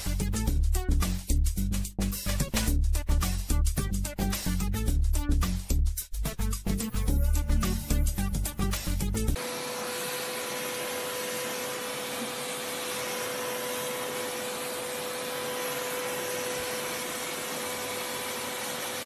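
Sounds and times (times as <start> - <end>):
vacuum cleaner running: 9.4 - 19.0.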